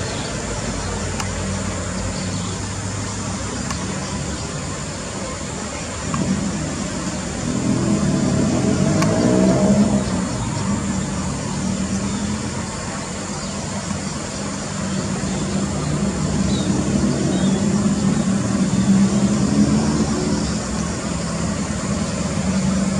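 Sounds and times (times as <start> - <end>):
vehicle engine revving: 5.9 - 13.3, 13.9 - 22.9.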